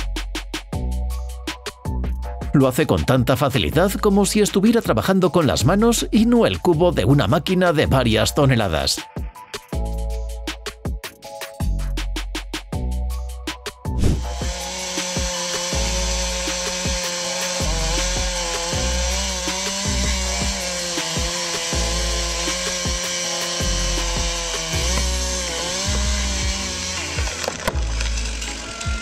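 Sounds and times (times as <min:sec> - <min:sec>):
background music bass line: 0:00.0 - 0:29.0
chainsaw cutting tree trunk: 0:14.0 - 0:29.0.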